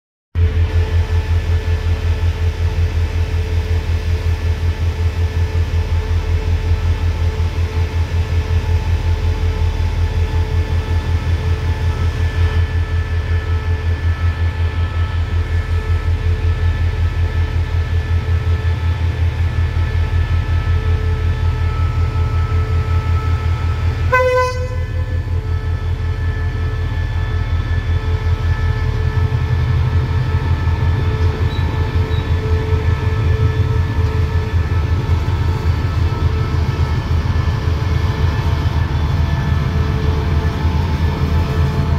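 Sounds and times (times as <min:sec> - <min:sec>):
diesel locomotive engine throbbing: 0:00.4 - 0:41.9
train horn toot: 0:20.6 - 0:37.0.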